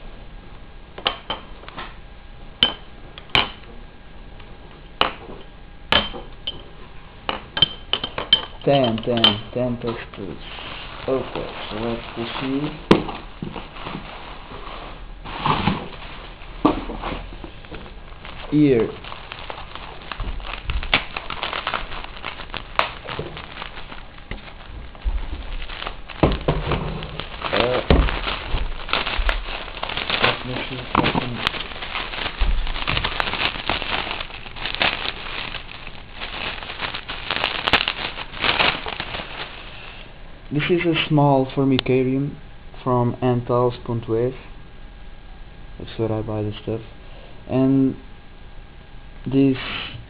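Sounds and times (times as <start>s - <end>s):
glass test tubes clinking: 7.6s - 9.6s
bubble wrap crinkling: 10.0s - 40.1s.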